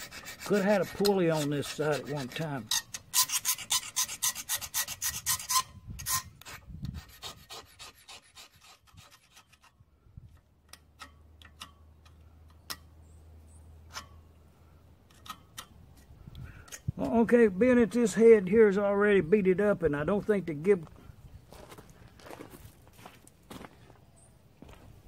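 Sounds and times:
tool scraping rusty metal: 0:00.0 - 0:12.9, 0:13.8 - 0:14.4, 0:15.0 - 0:18.1
small metal ticks: 0:10.3 - 0:12.9.

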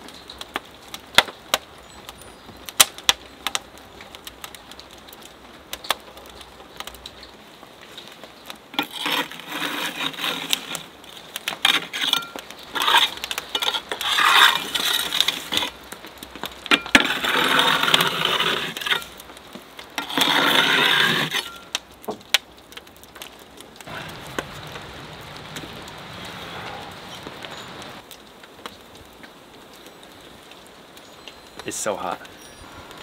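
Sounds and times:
metal poker scraping brick: 0:08.8 - 0:15.8, 0:16.7 - 0:19.2, 0:20.0 - 0:21.8.

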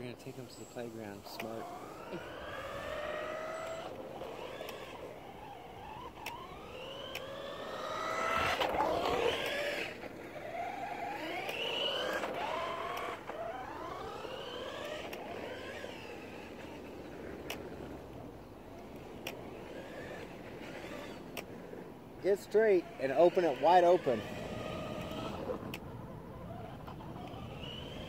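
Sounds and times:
rc car motors whining: 0:00.0 - 0:28.0
sharp ticks: 0:01.2 - 0:01.6, 0:02.5 - 0:05.1, 0:06.0 - 0:09.6, 0:21.2 - 0:21.5, 0:25.0 - 0:25.9.

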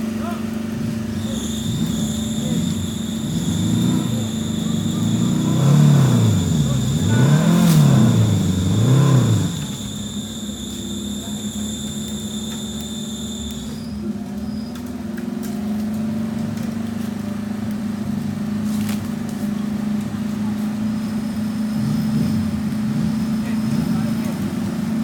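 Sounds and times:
steady high whine: 0:00.0 - 0:14.1
off-road vehicle engine revving: 0:00.0 - 0:25.0.

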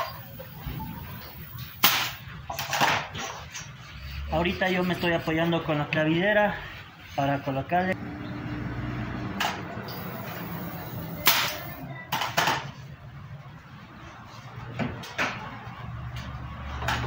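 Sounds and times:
nail gun firing: 0:11.2 - 0:11.7.

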